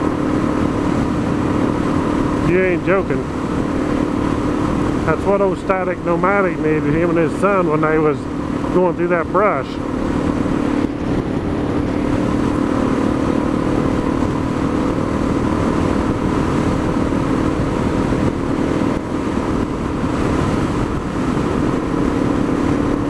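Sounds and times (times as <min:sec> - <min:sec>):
motorcycle engine cruising: 0:00.0 - 0:23.0
wind rushing on microphone: 0:00.0 - 0:23.0.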